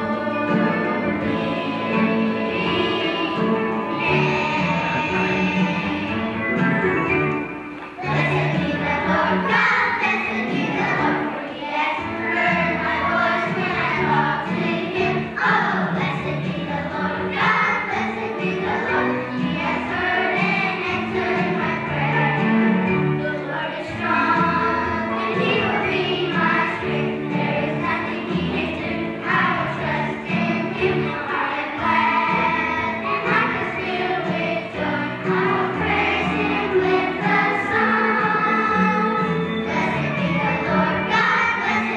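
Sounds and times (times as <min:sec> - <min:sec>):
children's choir singing: 0:00.0 - 0:41.9
instrumental accompaniment: 0:00.0 - 0:41.9.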